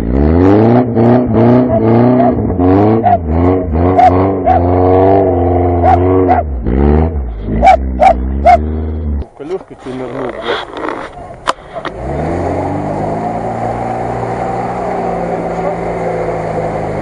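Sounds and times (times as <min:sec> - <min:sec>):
car engine revving hard: 0:00.0 - 0:09.3, 0:09.9 - 0:17.0
small dog barking: 0:07.6 - 0:08.7.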